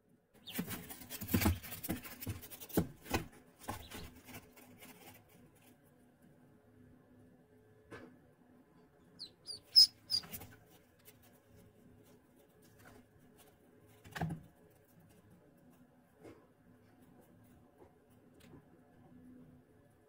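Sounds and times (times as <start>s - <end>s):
ducklings peeping: 0.4s - 1.8s, 3.6s - 4.2s, 9.2s - 10.5s.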